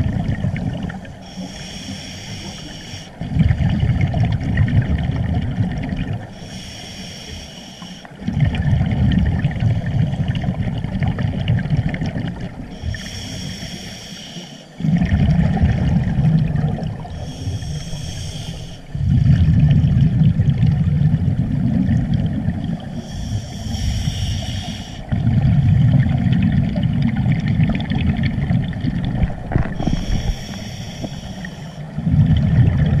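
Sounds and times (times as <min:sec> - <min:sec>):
exhaled bubbles rumbling: 0:00.0 - 0:02.1, 0:03.1 - 0:06.4, 0:08.1 - 0:13.2, 0:14.7 - 0:33.0
hissing regulator inhale: 0:01.2 - 0:03.2, 0:06.3 - 0:08.2, 0:12.7 - 0:14.8, 0:17.1 - 0:19.1, 0:22.9 - 0:25.1, 0:29.6 - 0:32.0.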